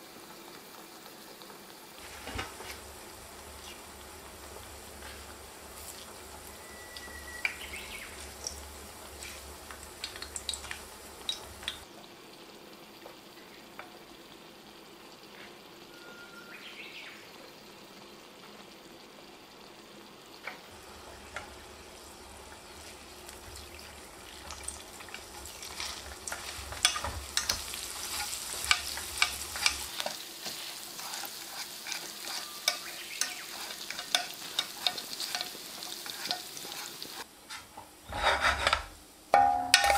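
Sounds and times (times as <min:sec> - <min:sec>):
garlic sizzling in oil: 0:00.0 - 0:39.9
liquid poured into hot oil: 0:02.0 - 0:11.9, 0:20.5 - 0:32.4.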